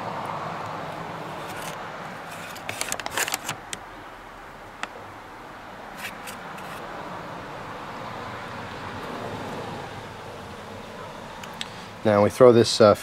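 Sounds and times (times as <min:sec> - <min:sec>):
paper rustling: 0:01.4 - 0:03.8.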